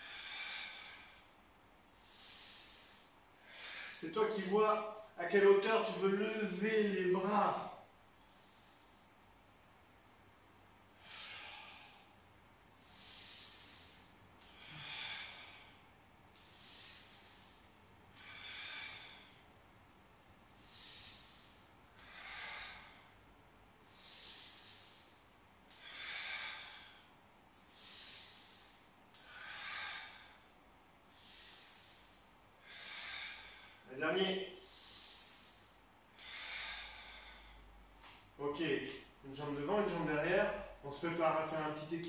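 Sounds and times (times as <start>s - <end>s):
man breathing with exertion: 0.0s - 4.0s, 8.1s - 39.2s.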